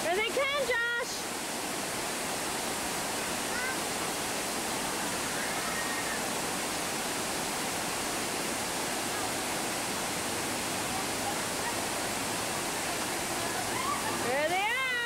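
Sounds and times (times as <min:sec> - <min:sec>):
water rushing down a flume: 0:00.0 - 0:15.0.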